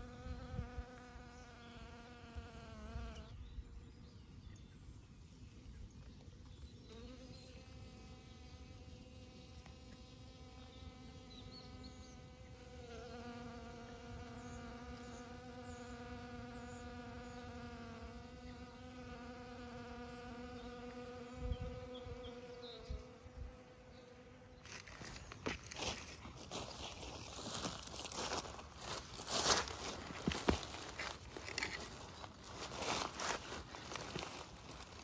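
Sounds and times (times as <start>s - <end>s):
honeybee buzzing: 0.0s - 3.4s, 6.9s - 26.2s.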